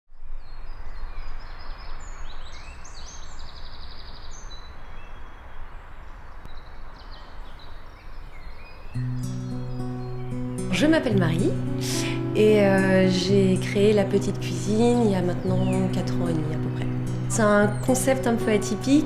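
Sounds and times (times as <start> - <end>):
small birds chirping: 0.4 - 19.0.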